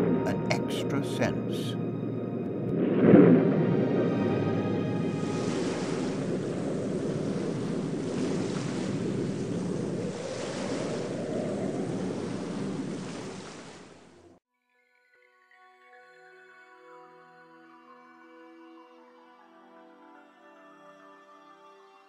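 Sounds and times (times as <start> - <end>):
wind rushing: 2.0 - 13.5
waves surging: 2.6 - 14.3.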